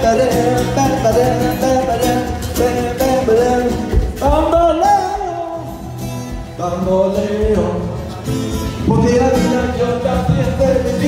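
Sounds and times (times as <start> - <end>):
person singing: 0.0 - 8.2
strummed acoustic guitars: 0.0 - 11.0.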